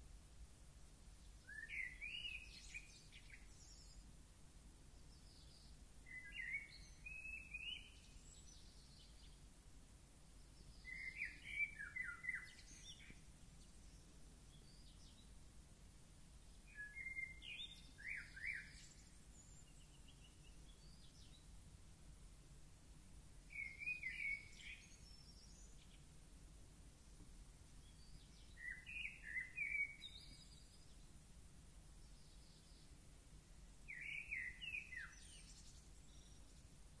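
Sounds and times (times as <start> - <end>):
faint background noise: 0.0 - 37.0
songbird twittering: 1.4 - 4.0, 5.2 - 9.4, 10.6 - 15.2, 16.7 - 21.5, 23.5 - 26.0, 27.8 - 31.0, 32.0 - 36.6.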